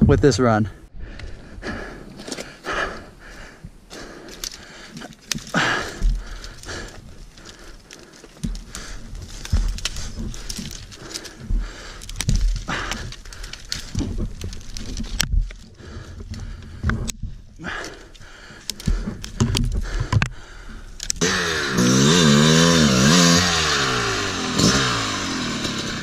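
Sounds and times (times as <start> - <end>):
heavy breathing: 0.7 - 26.0
footsteps on dry forest ground: 0.8 - 17.5.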